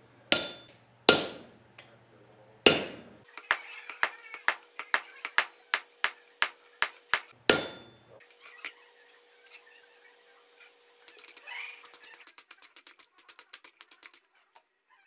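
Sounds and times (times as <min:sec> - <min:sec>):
ringing anvil clang: 0:00.4 - 0:01.4, 0:02.7 - 0:08.6.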